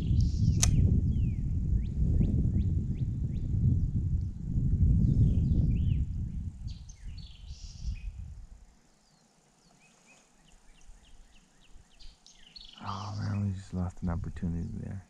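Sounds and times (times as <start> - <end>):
low rumble: 0.0 - 8.5
wild birds chirping: 5.0 - 15.0.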